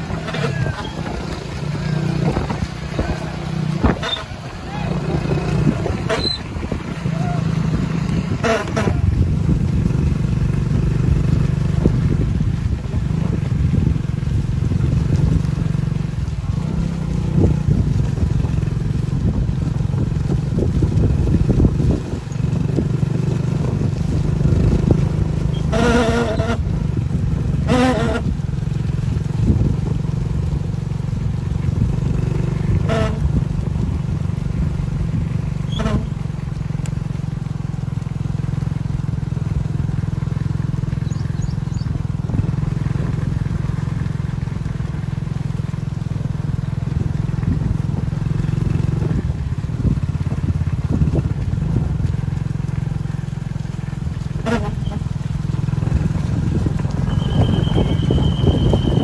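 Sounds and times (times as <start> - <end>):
people shouting: 0.0 - 1.2, 4.5 - 5.3, 7.0 - 7.6
motorcycle engine running: 0.0 - 59.0.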